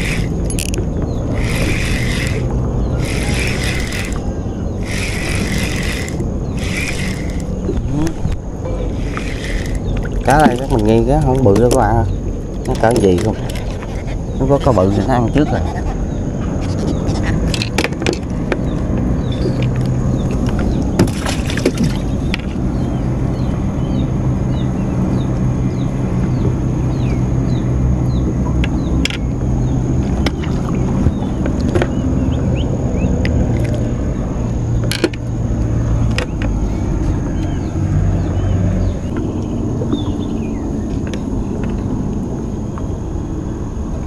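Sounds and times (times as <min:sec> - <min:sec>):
fishing gear clicks and knocks: 0:00.0 - 0:04.2, 0:04.8 - 0:08.4, 0:09.0 - 0:12.0, 0:12.6 - 0:15.0, 0:16.6 - 0:22.6
motor humming: 0:00.0 - 0:10.6
small bird chirping: 0:00.0 - 0:11.1.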